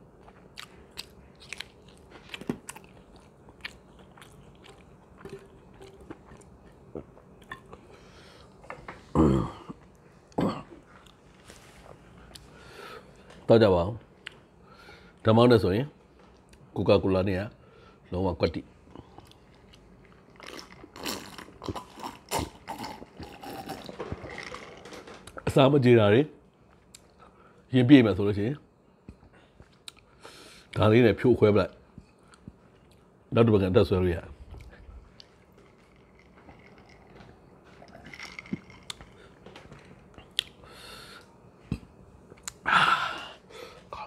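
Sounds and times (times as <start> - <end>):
sips and swallows: 3.6 - 8.0, 34.5 - 40.6
man gulping soda: 20.2 - 24.9, 34.5 - 40.6.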